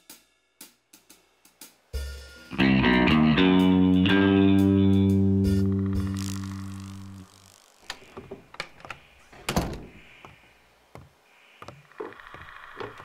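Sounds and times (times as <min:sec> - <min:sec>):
distorted electric guitar chord: 0:05.9 - 0:07.8
cabin door opening and shutting: 0:07.9 - 0:10.1.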